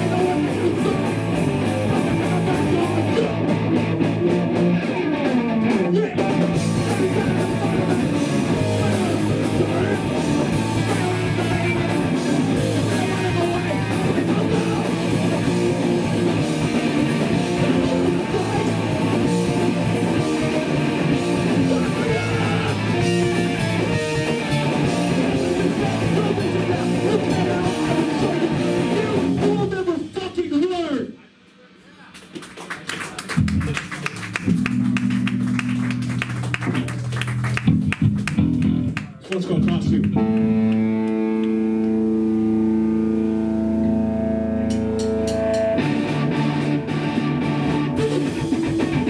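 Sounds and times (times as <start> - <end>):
punk band playing live: 0.0 - 31.5, 32.2 - 49.0.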